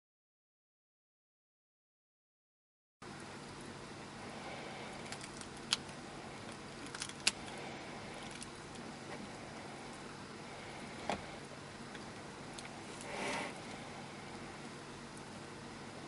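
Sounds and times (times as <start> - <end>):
steady low hiss: 3.0 - 16.0
eggshell clicks and cracks: 5.0 - 7.5, 8.2 - 8.8.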